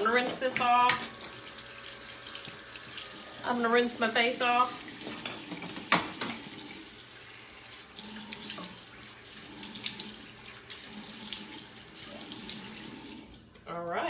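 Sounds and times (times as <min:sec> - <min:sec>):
tap running into sink: 0:04.8 - 0:06.8, 0:08.3 - 0:08.8.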